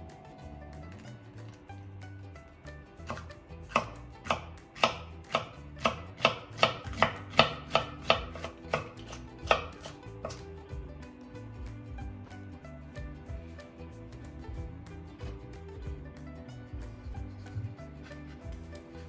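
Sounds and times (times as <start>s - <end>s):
knife chopping on wooden board: 3.1s - 10.4s.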